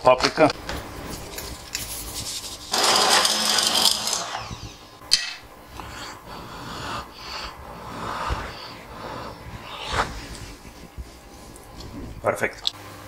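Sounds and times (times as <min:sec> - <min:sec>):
seasoning shaker rattle: 0:01.2 - 0:02.7.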